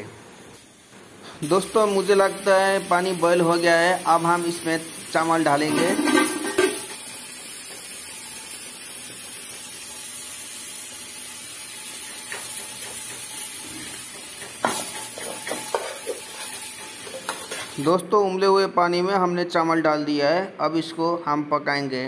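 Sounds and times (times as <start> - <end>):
water boiling and bubbling: 0.9 - 17.4
pot lid clank: 5.7 - 7.0.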